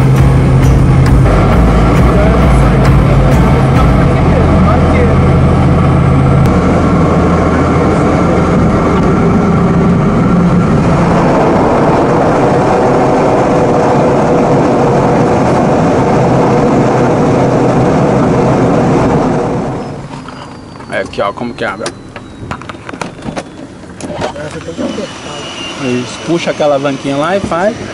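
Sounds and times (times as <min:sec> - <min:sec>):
air rush: 0:00.0 - 0:20.2, 0:24.6 - 0:27.9
engine and propeller drone: 0:00.0 - 0:27.9.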